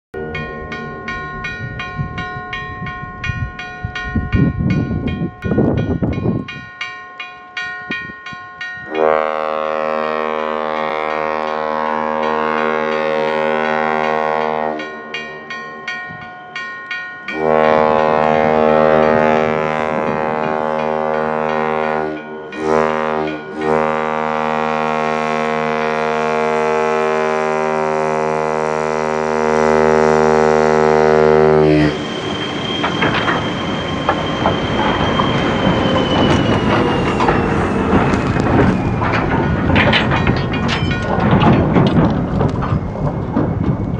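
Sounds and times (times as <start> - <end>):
locomotive air horn blasts: 8.8 - 15.5, 17.3 - 32.1
high squeal falling in pitch: 31.7 - 39.2.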